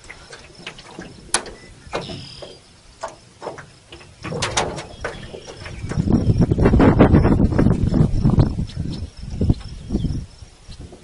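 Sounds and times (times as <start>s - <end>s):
line scraping hull: 0.0s - 8.5s
line knocking on metal boat: 0.9s - 6.4s.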